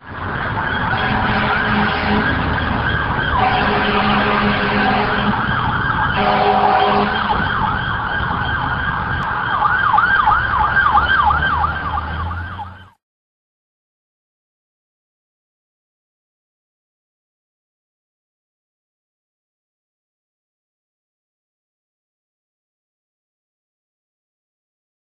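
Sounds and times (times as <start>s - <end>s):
emergency vehicle siren: 0.0s - 13.0s.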